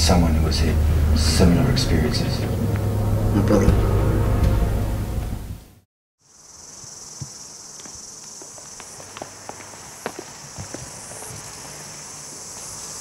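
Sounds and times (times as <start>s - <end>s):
high-pitched insects chorus: 0.0s - 3.7s, 6.2s - 13.0s
footsteps on asphalt: 6.7s - 13.0s.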